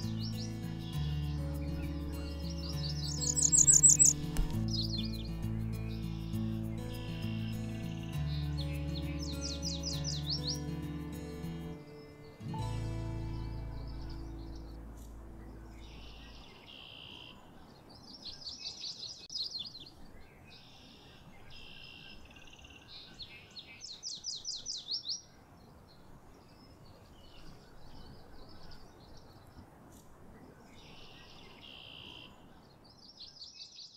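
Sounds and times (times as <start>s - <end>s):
songbirds singing: 0.0s - 33.9s
soundtrack music: 10.4s - 15.9s.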